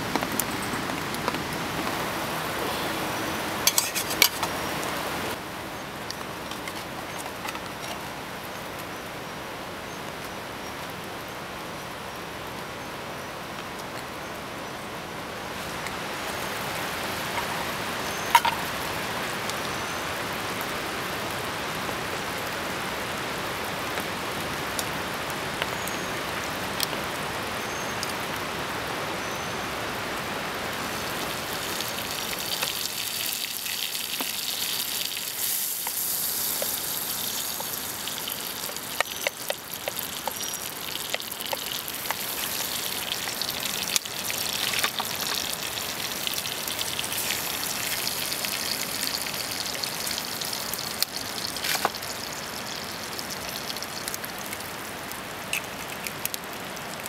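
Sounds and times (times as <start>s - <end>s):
heavy rain pattering: 0.0s - 8.9s, 13.4s - 57.0s
oil sizzling in a frying pan: 17.2s - 19.0s, 30.8s - 54.7s.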